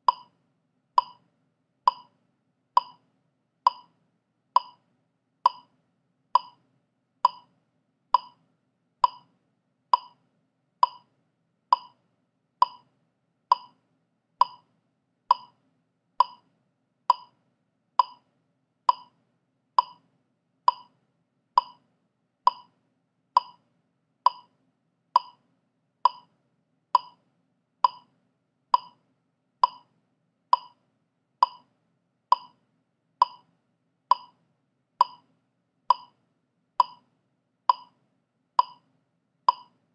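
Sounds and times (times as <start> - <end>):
metronome clicking: 0.0 - 0.3, 1.0 - 1.2, 1.9 - 2.1, 2.8 - 3.0, 3.7 - 3.9, 4.6 - 4.8, 5.5 - 5.7, 6.4 - 6.6, 7.3 - 7.5, 8.2 - 8.4, 9.0 - 9.2, 10.0 - 10.2, 10.8 - 11.1, 11.8 - 12.0, 12.6 - 12.8, 13.5 - 13.7, 14.4 - 14.6, 15.3 - 15.5, 16.2 - 16.4, 17.1 - 17.3, 18.0 - 18.2, 19.8 - 20.0, 20.7 - 20.9, 21.6 - 21.8, 22.5 - 22.7, 23.4 - 23.6, 24.3 - 24.5, 25.2 - 25.4, 26.1 - 26.3, 27.0 - 27.2, 27.9 - 28.1, 28.8 - 29.0, 29.6 - 29.9, 30.6 - 30.8, 31.4 - 31.6, 32.3 - 32.6, 33.2 - 33.4, 34.1 - 34.3, 35.0 - 35.2, 35.9 - 36.1, 36.8 - 37.0, 37.7 - 37.9, 38.6 - 38.8, 39.5 - 39.7.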